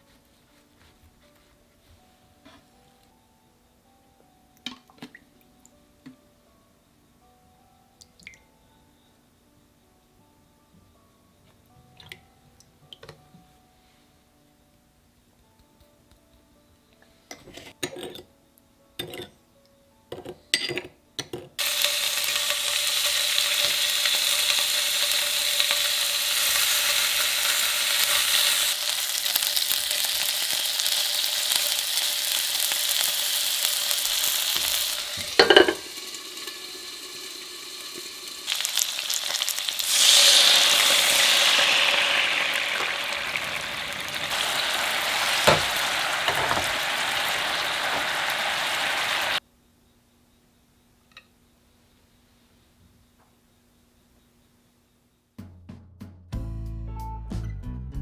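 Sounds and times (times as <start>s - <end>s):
metal spoon clinking glass bowl: 19.0s - 19.3s, 20.2s - 21.4s, 35.4s - 35.8s
meat sizzling in a frying pan: 21.6s - 49.4s
sauce bubbling: 28.7s - 49.4s.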